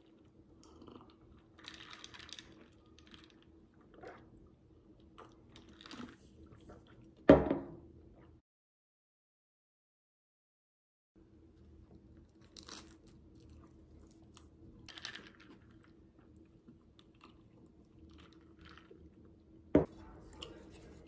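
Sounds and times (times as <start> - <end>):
chewing sandwich with soft crunches: 0.0 - 7.2, 11.6 - 21.0
glass knocking on table: 7.3 - 7.8.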